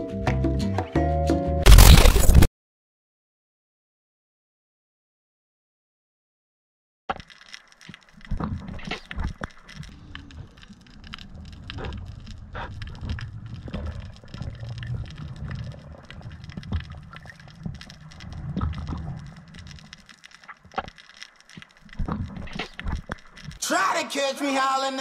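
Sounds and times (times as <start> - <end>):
crackling clicks: 7.1 - 23.6
underwater water rumble: 8.2 - 20.8.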